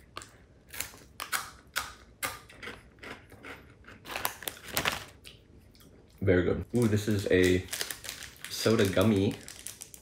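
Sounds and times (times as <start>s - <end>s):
person chewing crunchy fries: 0.0s - 6.2s.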